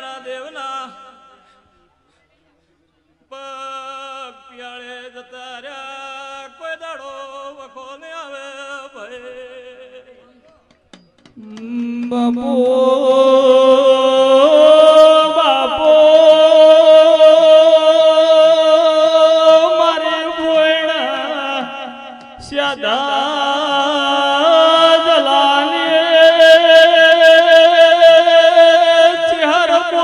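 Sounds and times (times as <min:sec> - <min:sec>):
man chant-singing through speakers: 0:00.0 - 0:02.0, 0:03.2 - 0:10.8, 0:11.4 - 0:30.0.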